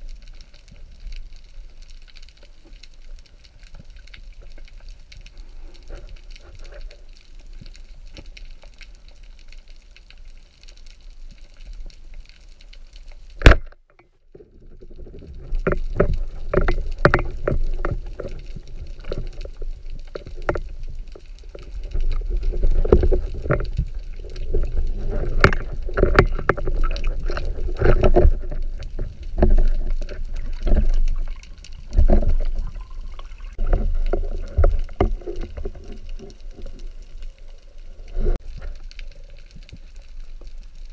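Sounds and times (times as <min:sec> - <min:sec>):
knocks and clicks underwater: 0:10.7 - 0:40.9
underwater water rushing: 0:14.6 - 0:40.9.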